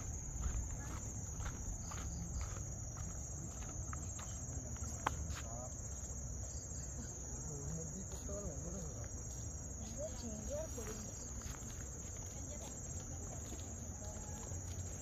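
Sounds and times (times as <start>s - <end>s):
insects droning: 0.0s - 15.0s
footsteps as faint clicks: 0.4s - 5.5s.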